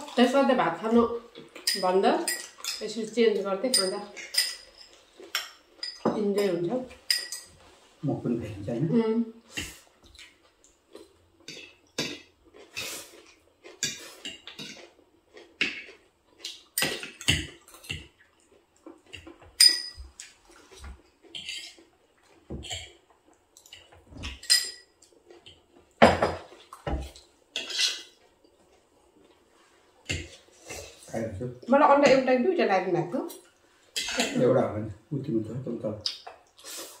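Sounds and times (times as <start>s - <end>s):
cutlery clatter: 3.7s - 7.5s, 19.5s - 20.1s, 24.2s - 24.9s, 27.6s - 28.2s, 34.0s - 34.5s
cutlery clinking on plates: 3.7s - 7.6s, 15.6s - 18.1s, 19.1s - 21.8s, 23.7s - 25.0s, 26.0s - 28.2s, 33.9s - 34.5s.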